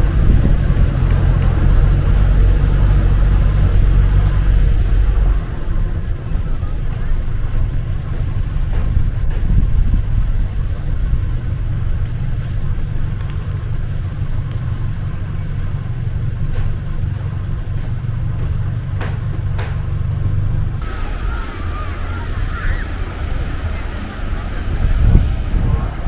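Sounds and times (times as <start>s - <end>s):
wind buffeting the microphone: 0.0s - 20.0s, 20.7s - 26.0s
faint clicks: 11.4s - 19.8s.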